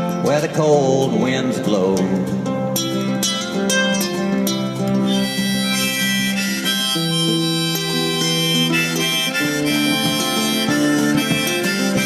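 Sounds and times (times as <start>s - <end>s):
strummed acoustic guitar: 0.0s - 12.0s
harmonica melody: 2.8s - 12.0s.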